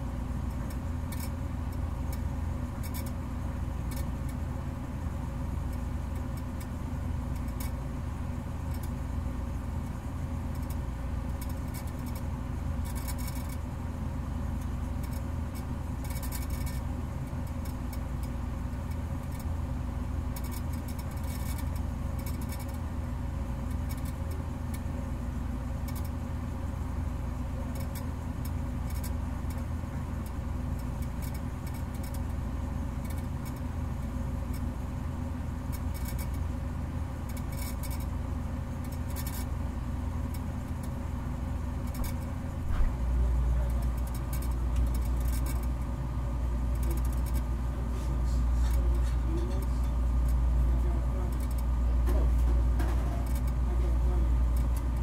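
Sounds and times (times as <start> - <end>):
low machine hum: 0.0 - 55.0
faint crackles and clicks: 41.7 - 46.0.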